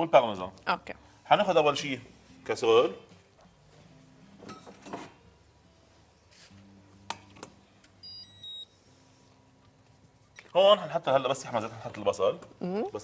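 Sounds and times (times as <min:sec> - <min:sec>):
short electronic beeps: 0:08.0 - 0:08.8.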